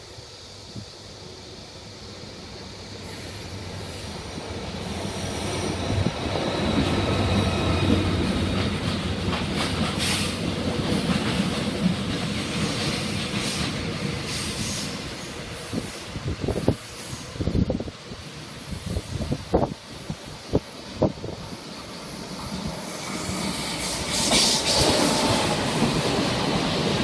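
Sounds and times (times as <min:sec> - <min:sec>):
diesel locomotive engine rumble: 0:00.0 - 0:27.0
train wheels squealing: 0:02.7 - 0:17.5, 0:20.5 - 0:27.0
train wheels clattering over rail joints: 0:05.4 - 0:16.9.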